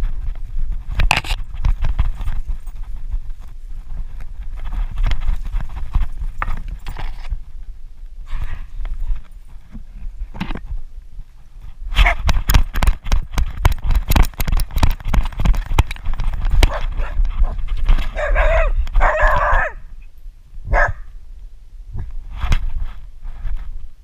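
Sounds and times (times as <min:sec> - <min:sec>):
knocking and rustling on camera: 0:00.0 - 0:07.4, 0:08.4 - 0:10.9, 0:11.9 - 0:19.6
dog barking: 0:16.7 - 0:19.8, 0:20.7 - 0:21.0.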